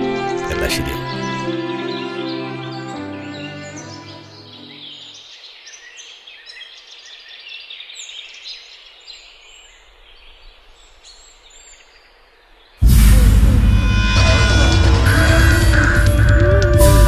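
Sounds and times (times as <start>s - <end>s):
small birds chirping: 0.0s - 12.8s
faint outdoor hiss: 3.4s - 12.8s.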